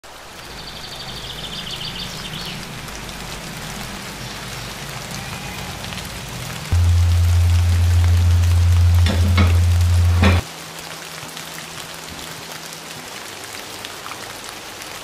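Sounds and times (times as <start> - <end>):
steady rain falling: 0.0 - 15.0
loud low hum: 6.2 - 10.4.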